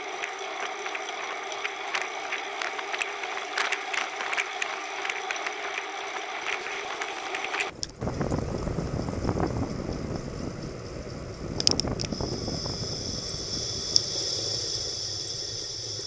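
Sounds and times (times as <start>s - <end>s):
bicycle tyre noise on road: 0.0s - 16.0s
wind buffeting microphone: 7.7s - 15.3s
sharp clicks: 11.6s - 12.4s.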